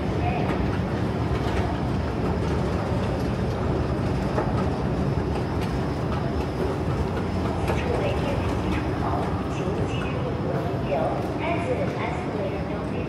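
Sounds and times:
station hall rumble: 0:00.0 - 0:13.0.

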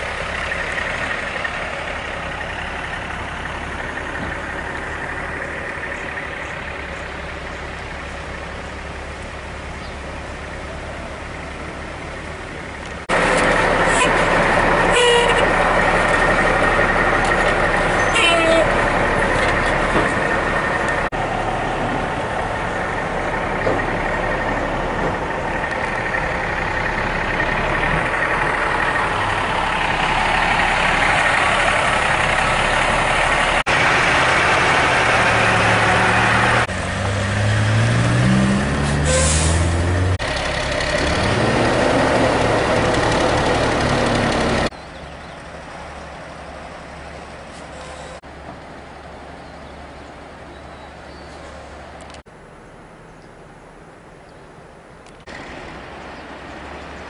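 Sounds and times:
heavy diesel truck engines: 0:00.0 - 0:57.0.

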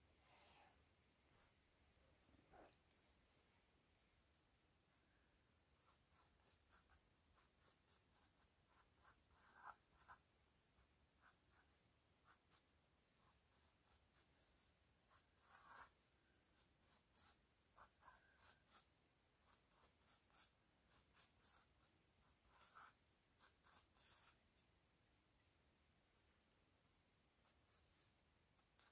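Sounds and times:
pencil sketching on canvas: 0:05.7 - 0:24.4, 0:27.4 - 0:28.9.

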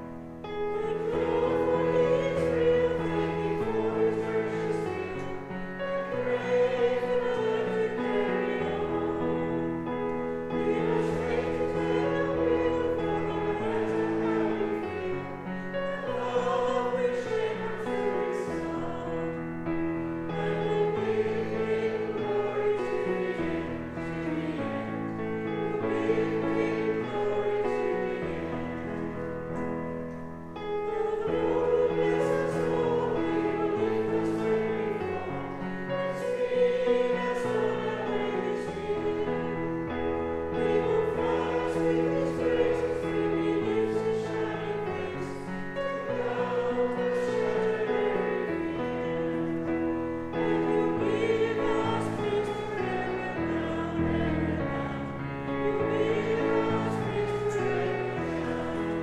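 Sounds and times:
choir singing a hymn: 0:00.0 - 0:59.0.

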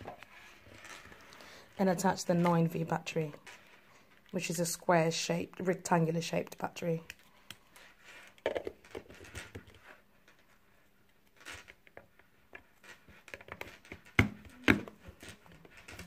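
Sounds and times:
plastic rustling and taps: 0:08.1 - 0:10.5, 0:11.2 - 0:16.0.

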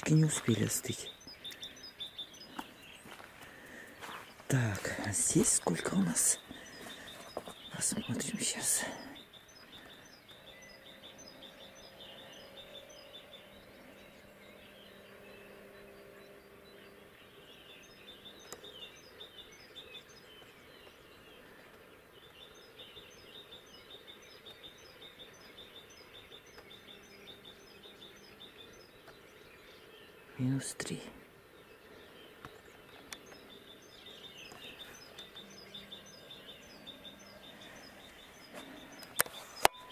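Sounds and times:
birds chirping: 0:00.0 - 0:39.9
faint low hum: 0:00.0 - 0:39.9.

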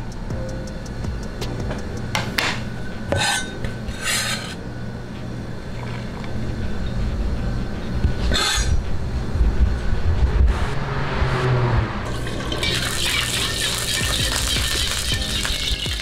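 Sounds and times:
metal spatula scraping a wok: 0:03.1 - 0:04.6, 0:12.1 - 0:16.0
steady low rumble: 0:04.6 - 0:13.0.

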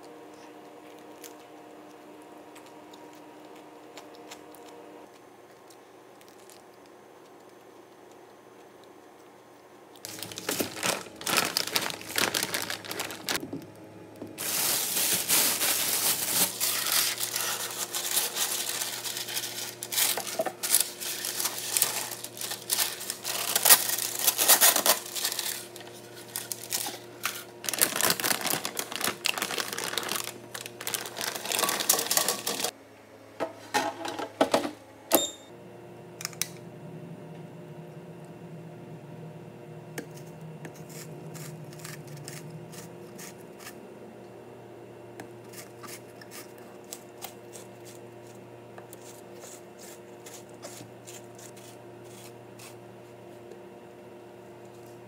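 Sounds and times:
paper crinkling and crackling: 0:10.0 - 0:13.4, 0:14.4 - 0:32.7
paper tearing: 0:10.1 - 0:13.4, 0:14.4 - 0:32.7
low hum: 0:34.9 - 0:45.4.

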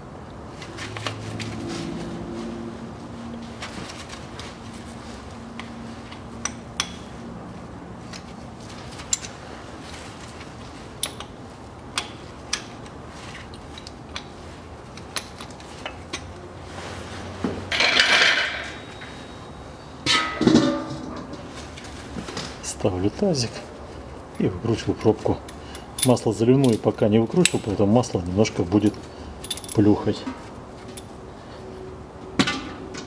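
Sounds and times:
metal basin clattering: 0:20.0 - 0:21.6.

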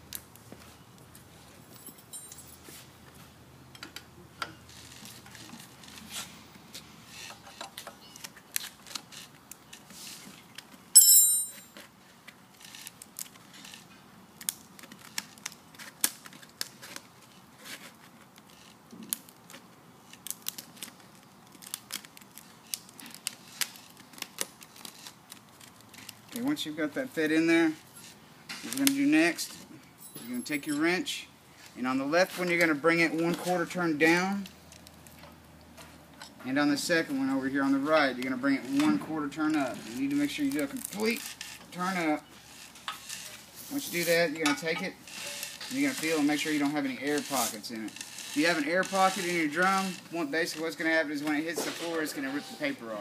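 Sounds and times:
sandpaper crackling and rustling: 0:39.6 - 0:44.4, 0:45.1 - 0:52.2.

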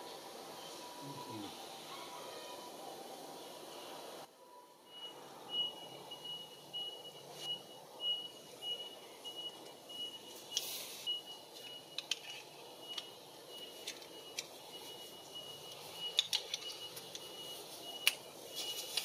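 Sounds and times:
high-pitched beeping: 0:03.7 - 0:19.0
rustle: 0:10.3 - 0:12.5.

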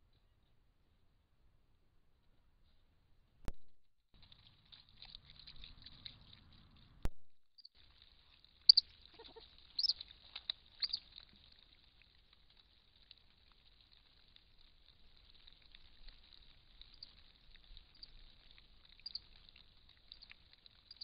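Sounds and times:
otters squeaking: 0:08.7 - 0:11.1.

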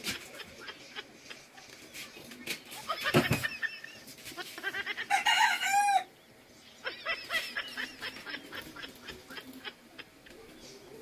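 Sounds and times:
rooster crowing: 0:05.1 - 0:06.1.

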